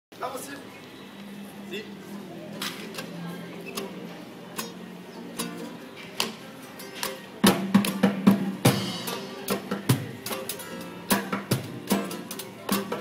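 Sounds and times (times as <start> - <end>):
acoustic guitars: 2.4 - 13.0
cajon and cymbal: 5.4 - 13.0.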